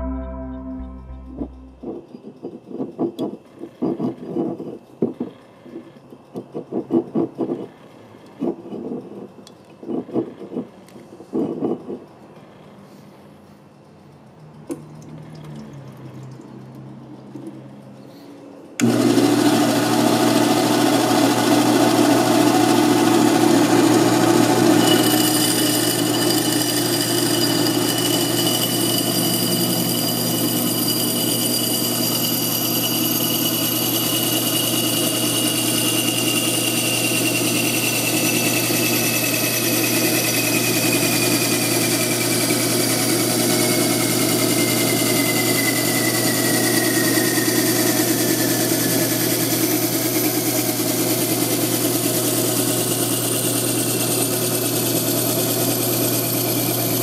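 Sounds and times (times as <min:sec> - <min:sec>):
band saw motor hum: 0:18.8 - 0:57.0
saw blade cutting glass bottle: 0:22.4 - 0:51.1.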